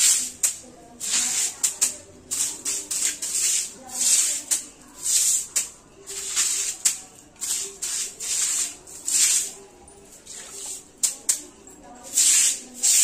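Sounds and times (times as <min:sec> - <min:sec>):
broom sweeping tiled floor: 0:00.0 - 0:13.0.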